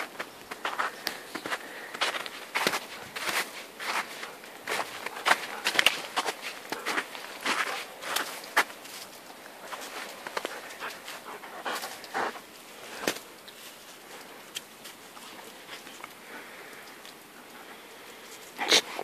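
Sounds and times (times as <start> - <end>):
dog panting: 4.0 - 7.9, 9.7 - 13.1.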